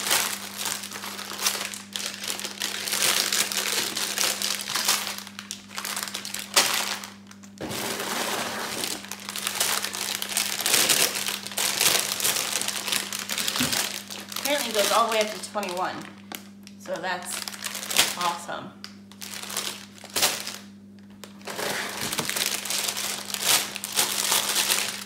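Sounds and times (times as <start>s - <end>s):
plastic bags crinkling: 0.0s - 25.0s.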